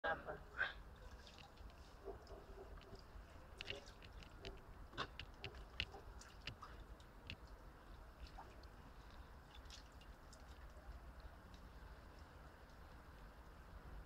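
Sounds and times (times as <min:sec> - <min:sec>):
small clicks and ticks: 0:01.2 - 0:14.0.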